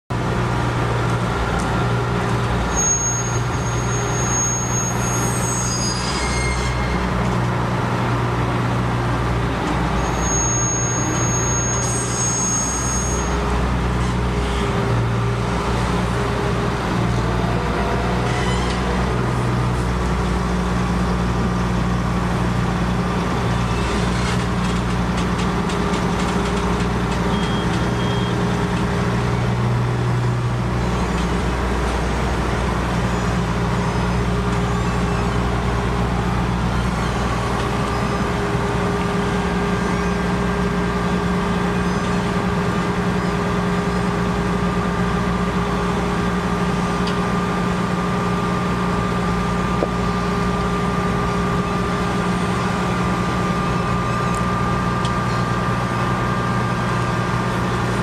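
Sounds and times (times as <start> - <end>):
excavator engine humming: 0.1 - 5.0, 6.8 - 11.7, 13.2 - 58.0
thin high whistle: 2.7 - 7.0, 10.1 - 13.3.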